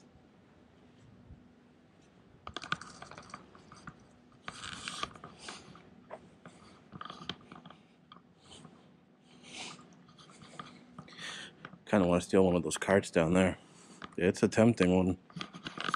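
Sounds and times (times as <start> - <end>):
faint hum: 0.0 - 15.9
camera handling clicks and rustles: 15.4 - 15.9.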